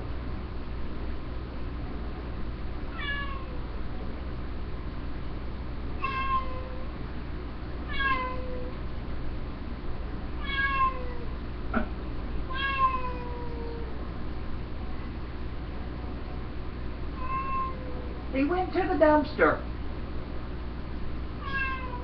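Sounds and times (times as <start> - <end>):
cat meowing: 2.9 - 3.6, 6.0 - 6.8, 7.9 - 8.7, 10.4 - 11.3, 12.5 - 13.9, 17.2 - 18.1, 21.4 - 22.0.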